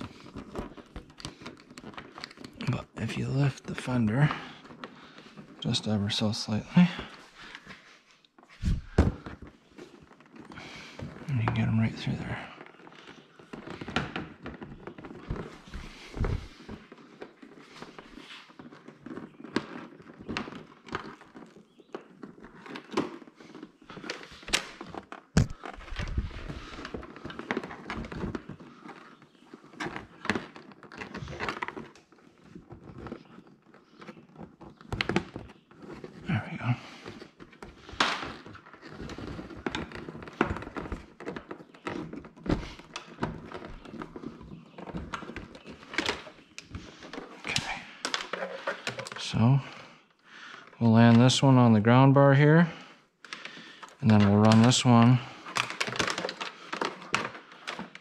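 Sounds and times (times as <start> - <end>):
wires rustling: 0.0 - 58.0
knocks and thunks on plastic: 8.6 - 9.5, 24.0 - 28.6.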